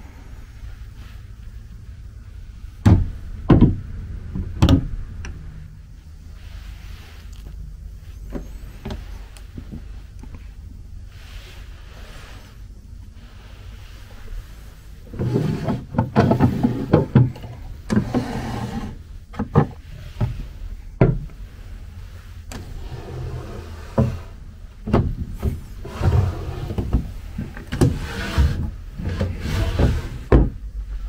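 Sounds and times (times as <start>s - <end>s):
wooden drawers sliding scrapes: 15.0s - 20.6s, 22.5s - 30.5s.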